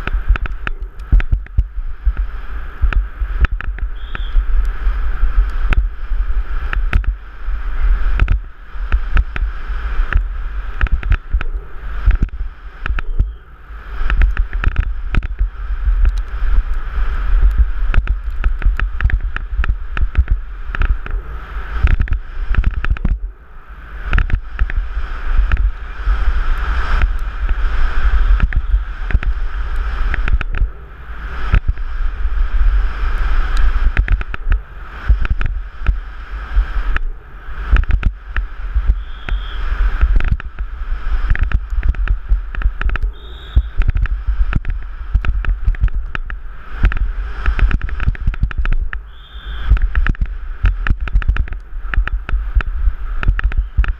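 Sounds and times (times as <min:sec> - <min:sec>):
bike knocking and rattling: 0:00.0 - 0:23.3, 0:24.0 - 0:30.8, 0:31.4 - 0:53.9
tyre noise on dirt: 0:00.0 - 0:23.3, 0:23.9 - 0:53.9
wind rumbling on microphone: 0:00.0 - 0:53.9.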